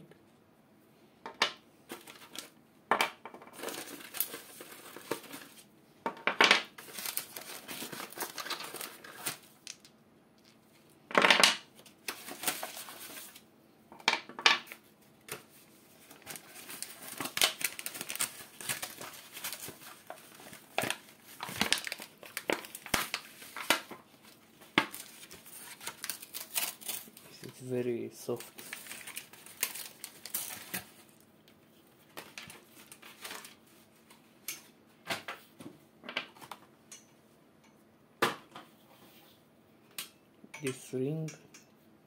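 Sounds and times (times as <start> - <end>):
paper crinkling and rustling: 1.9 - 2.6, 3.5 - 5.6, 6.7 - 9.8, 11.8 - 13.4, 14.7 - 31.2, 31.8 - 34.3.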